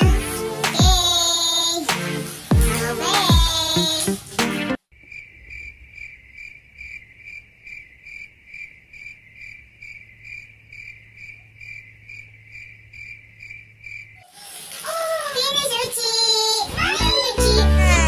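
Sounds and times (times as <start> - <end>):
cricket chirping: 4.9 - 14.6.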